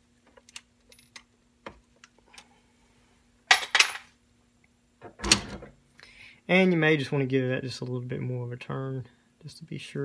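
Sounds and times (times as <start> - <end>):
metal parts clinking: 3.5 - 4.1.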